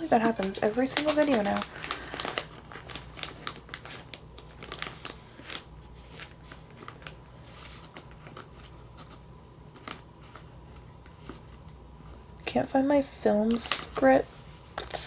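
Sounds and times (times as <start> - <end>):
paper rustling: 0.0 - 11.6.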